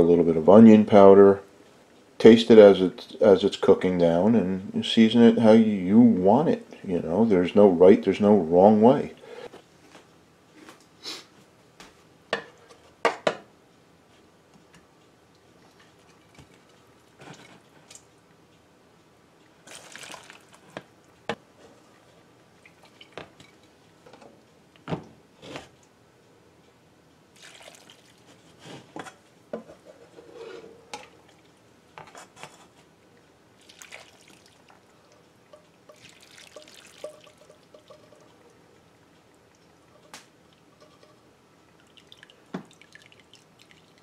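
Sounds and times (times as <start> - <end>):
liquid dripping: 19.5 - 20.7, 27.4 - 28.2, 33.6 - 44.0
liquid pouring and splashing: 19.6 - 20.8, 22.6 - 23.6, 27.4 - 28.3, 33.6 - 35.2, 35.9 - 38.6, 41.7 - 44.0.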